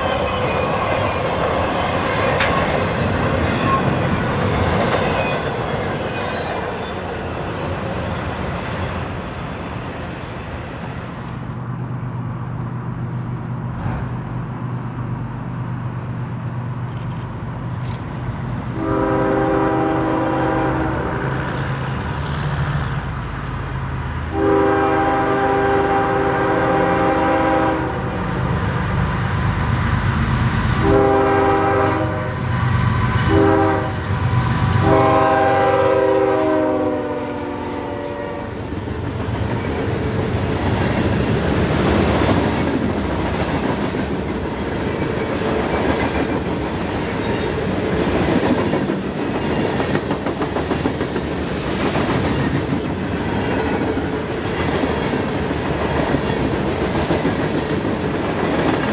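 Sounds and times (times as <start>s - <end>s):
train wheels clickety-clack: 0.0s - 9.1s, 38.6s - 58.9s
locomotive horn blasts: 18.8s - 21.3s, 24.3s - 28.2s, 30.8s - 32.4s, 33.3s - 34.0s, 34.8s - 38.6s.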